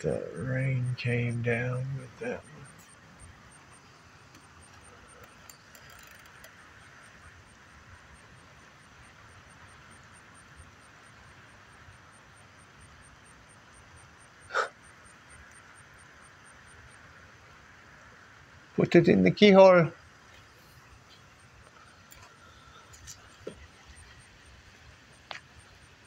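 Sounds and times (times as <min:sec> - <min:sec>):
high pulsing chirp: 0:00.0 - 0:05.6
steady low hiss: 0:00.0 - 0:26.0.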